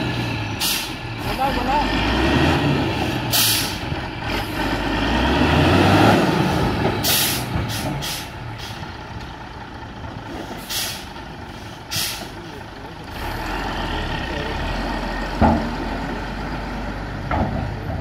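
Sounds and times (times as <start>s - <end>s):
diesel truck engine running: 0.0s - 18.0s
short sharp air hisses: 10.7s - 11.0s, 11.9s - 12.3s.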